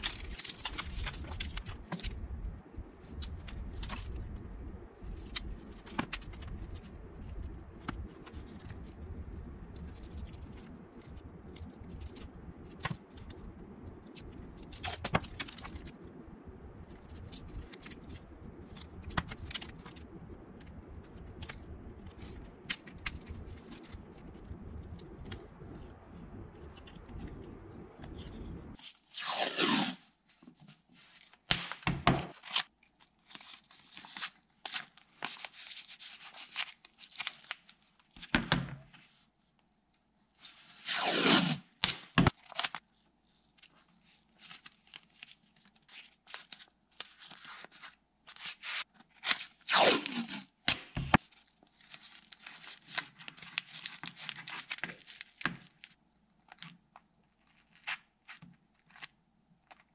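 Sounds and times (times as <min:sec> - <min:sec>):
tape crinkling and rubbing: 0:00.0 - 0:38.2, 0:40.3 - 0:59.9
tape screeching off the roll: 0:28.8 - 0:30.1, 0:40.4 - 0:42.0, 0:49.7 - 0:50.8.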